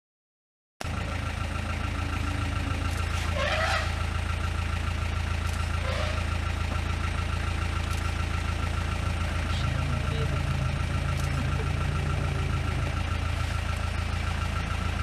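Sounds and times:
vehicle engine idling: 0.8 - 15.0
short rising calls: 1.8 - 4.3.

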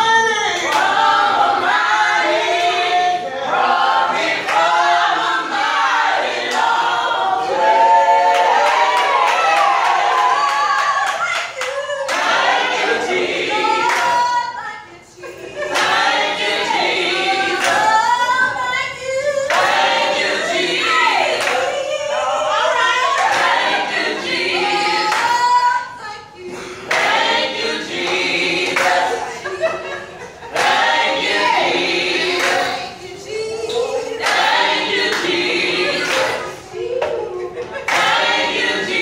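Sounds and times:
vocal group singing a cappella: 0.0 - 39.0
hand claps: 28.1 - 29.1, 36.0 - 38.2.

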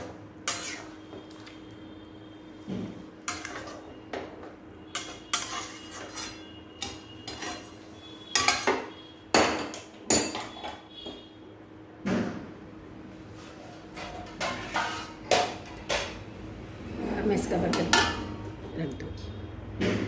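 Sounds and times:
spatula scraping metal pan: 0.4 - 1.0, 3.3 - 4.0, 4.9 - 8.9, 13.4 - 15.3.

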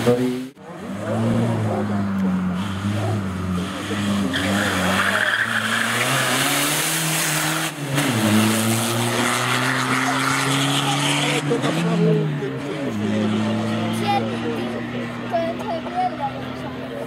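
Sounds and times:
race car engine revving: 0.0 - 17.0
tyres squealing: 3.7 - 7.1.

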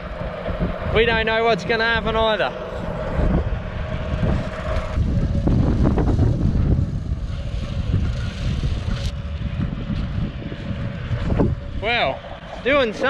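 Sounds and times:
tractor with slasher running: 0.0 - 13.0.

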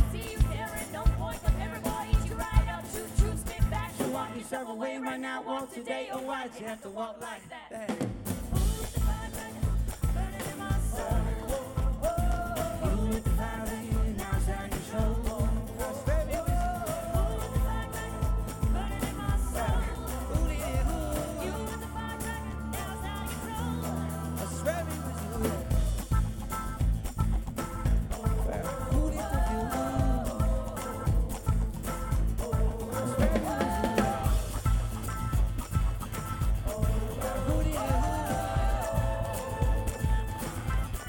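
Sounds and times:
live band playing: 0.0 - 4.4, 7.9 - 41.0
acoustic guitar: 0.0 - 4.6, 7.9 - 41.0
lead voice singing: 0.0 - 26.6, 27.8 - 41.0
female voices harmonising: 8.6 - 25.9, 28.2 - 34.8, 36.6 - 41.0.

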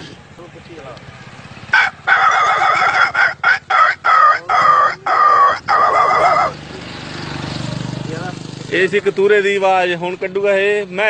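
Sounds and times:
man imitating puppy cries: 2.3 - 6.6.

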